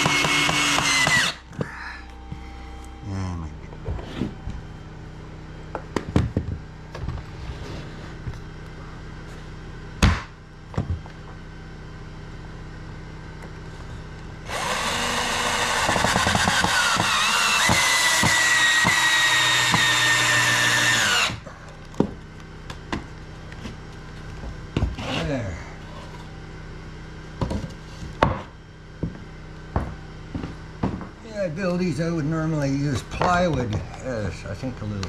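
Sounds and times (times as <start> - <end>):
cordless drill whining: 0.0 - 1.4, 14.5 - 21.4.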